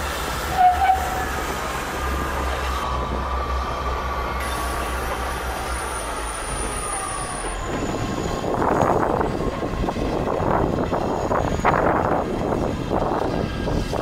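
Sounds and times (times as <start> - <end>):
train engine rumble: 0.0 - 14.0
wheels squealing: 0.2 - 3.0, 4.2 - 9.5.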